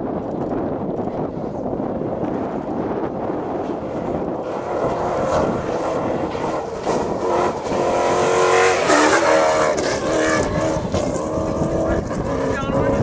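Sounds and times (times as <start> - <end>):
truck rushing on gravel: 2.3 - 12.6.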